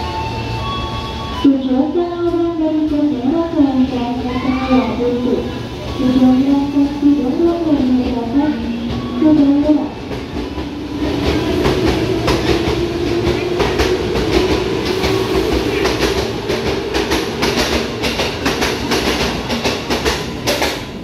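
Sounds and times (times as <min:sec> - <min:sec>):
wheels clacking over rail joints: 0:08.0 - 0:21.0.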